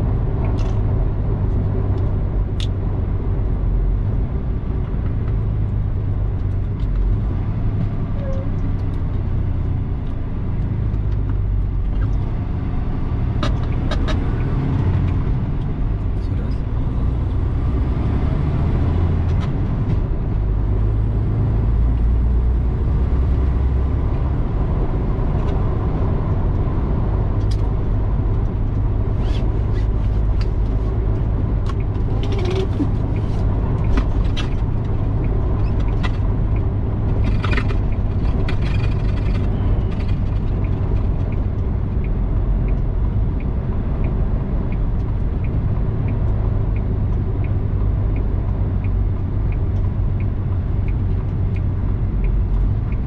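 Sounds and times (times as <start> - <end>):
road noise: 0.0 - 53.0
truck engine drone: 0.0 - 53.0.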